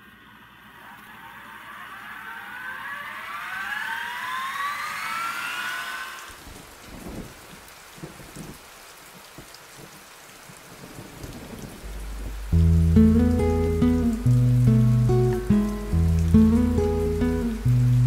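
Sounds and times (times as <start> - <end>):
synthesized rising tones: 0.4 - 6.4
steady crackling noise: 10.8 - 18.0
low rumbles: 11.8 - 18.0.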